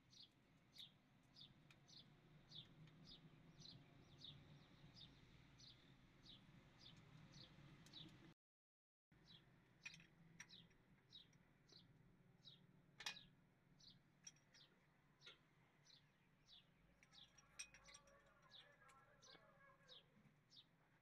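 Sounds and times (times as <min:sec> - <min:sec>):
bird chirping: 0:00.1 - 0:08.2, 0:09.2 - 0:12.6, 0:13.2 - 0:21.0.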